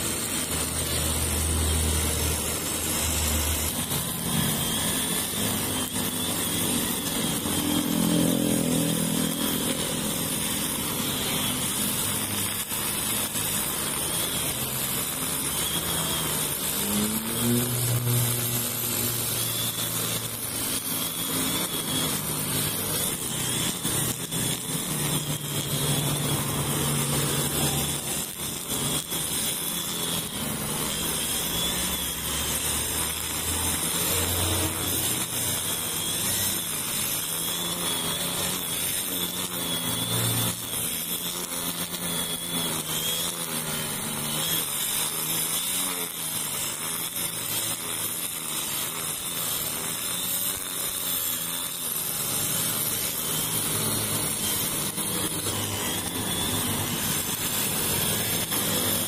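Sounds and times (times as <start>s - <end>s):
road traffic passing: 0.0s - 11.5s
brush cutter whining: 0.0s - 59.0s.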